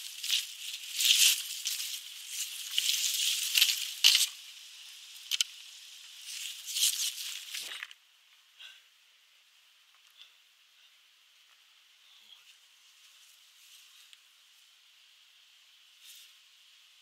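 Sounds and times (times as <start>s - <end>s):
footsteps rustling through dry leaves: 0.0s - 5.4s, 6.2s - 7.8s.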